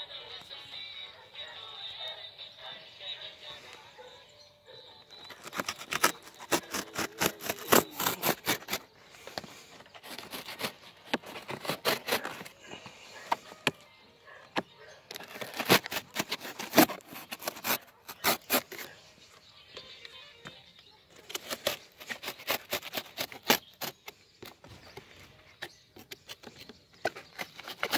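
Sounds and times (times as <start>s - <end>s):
packing tape and cardboard tearing: 5.2s - 12.6s, 15.1s - 19.0s, 21.2s - 24.6s, 26.0s - 27.9s.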